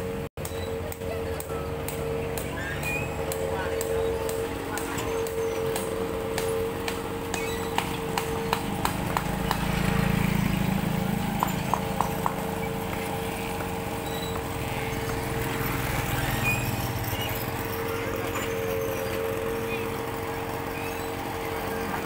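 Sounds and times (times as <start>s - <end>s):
motorbike engines passing: 0.0s - 22.0s
steady high hum: 0.0s - 22.0s
sharp evenly spaced clicks: 0.4s - 22.0s.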